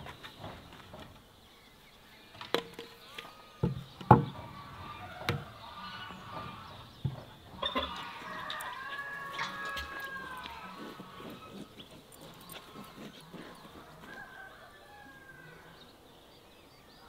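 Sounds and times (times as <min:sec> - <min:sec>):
poultry clucking: 0:02.3 - 0:15.8
knocks of wood on wood: 0:03.6 - 0:04.4.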